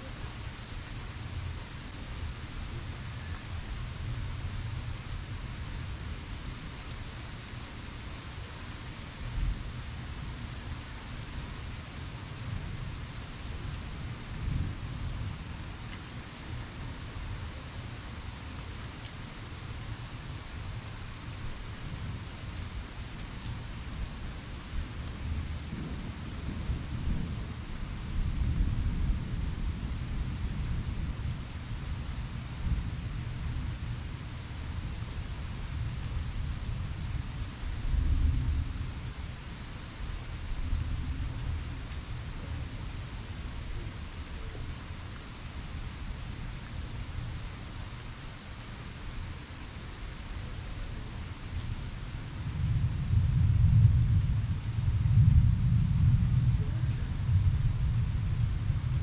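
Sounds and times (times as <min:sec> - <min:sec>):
steady rain hiss: 0:00.0 - 0:59.0
low rumble: 0:52.5 - 0:59.0.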